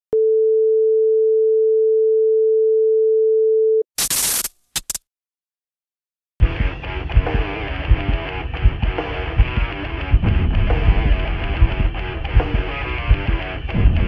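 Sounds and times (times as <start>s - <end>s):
static hiss bursts: 4.0s - 5.0s
band music with drums and guitar: 6.4s - 14.0s.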